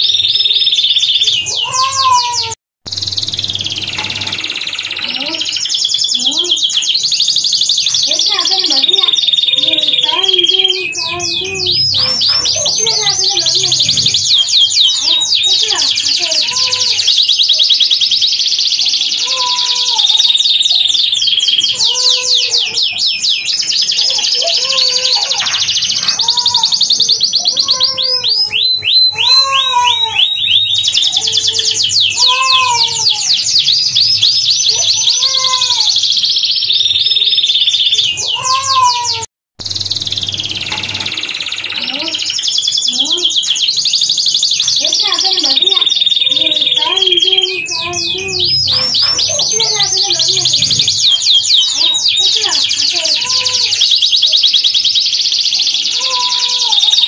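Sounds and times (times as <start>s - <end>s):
canary singing trills: 0.0s - 57.0s.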